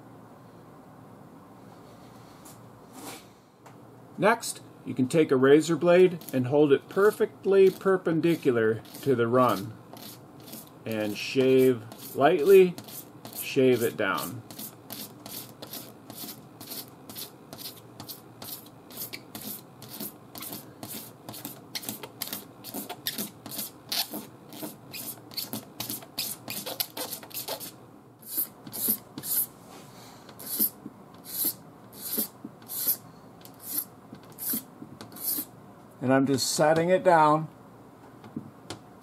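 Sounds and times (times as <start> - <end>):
razor blade scraping paint: 6.1 - 29.5, 30.4 - 35.5.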